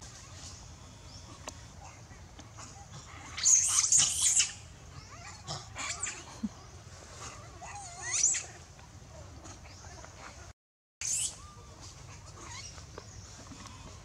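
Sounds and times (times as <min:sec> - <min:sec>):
baby monkey screaming: 0:03.3 - 0:06.3, 0:07.7 - 0:08.5, 0:11.0 - 0:11.4.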